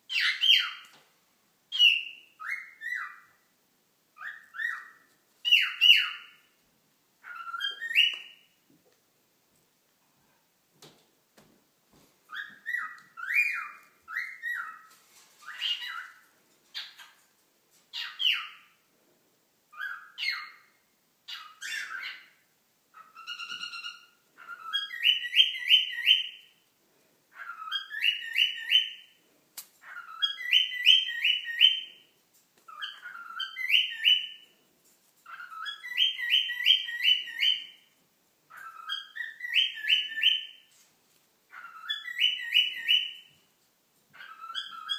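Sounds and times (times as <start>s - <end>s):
cockatiel whistling: 1.7s - 3.3s, 4.2s - 6.4s, 7.2s - 8.4s, 12.3s - 16.2s, 23.0s - 26.5s, 27.4s - 29.0s, 29.9s - 31.9s, 32.7s - 34.4s, 35.3s - 37.8s, 38.5s - 40.6s, 41.6s - 43.3s, 44.2s - 44.9s.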